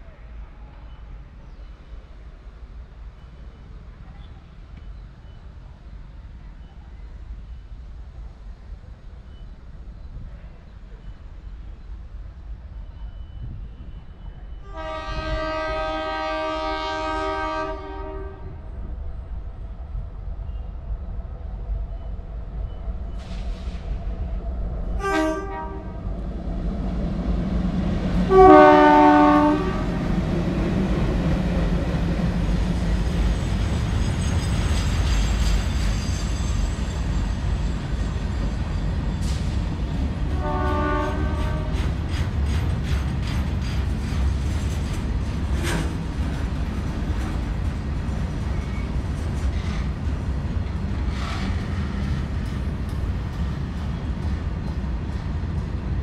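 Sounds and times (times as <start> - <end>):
train rumble and wheel clatter: 0.0 - 56.0
locomotive horn blasts: 14.6 - 18.6, 25.0 - 26.0, 28.3 - 30.0, 40.3 - 41.8.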